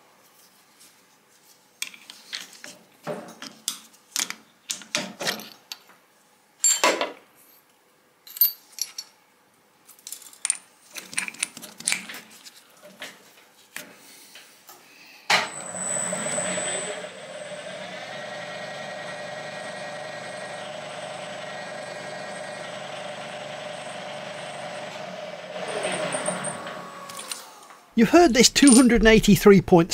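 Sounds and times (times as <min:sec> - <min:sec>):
metal tool bits clinking: 0:28.6 - 0:29.0.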